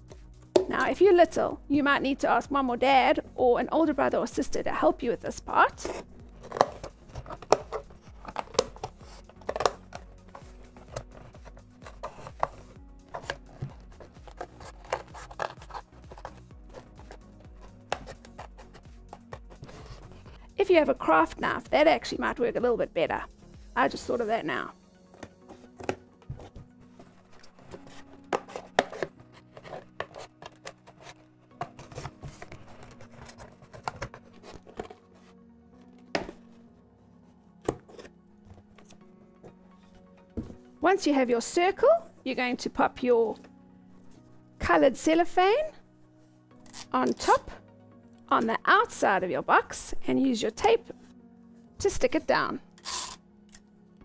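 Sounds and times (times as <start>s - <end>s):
quiet background music: 0.0s - 54.0s
scissors snipping cardboard: 6.4s - 20.0s.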